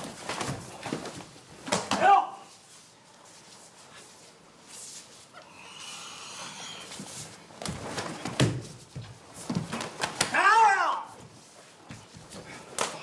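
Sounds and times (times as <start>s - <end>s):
person shouting: 1.9s - 2.5s, 10.3s - 11.2s.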